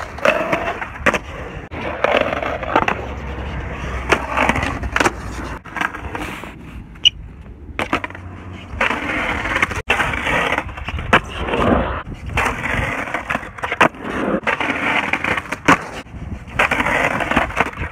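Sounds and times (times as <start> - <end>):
skateboard clacking: 0.0 - 6.3
skateboard wheels rolling on concrete: 0.0 - 17.9.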